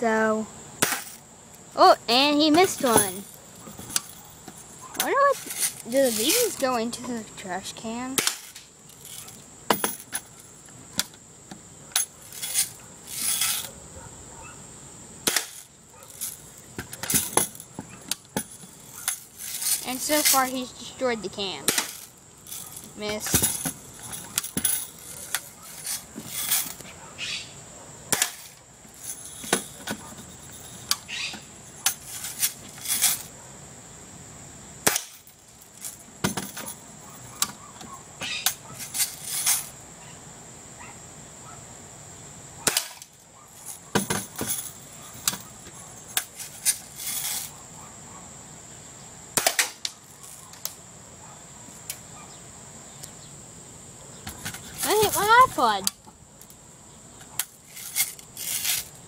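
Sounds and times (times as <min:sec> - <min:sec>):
pellets hitting a can: 0:00.8 - 0:01.2, 0:15.2 - 0:17.6, 0:21.6 - 0:23.8.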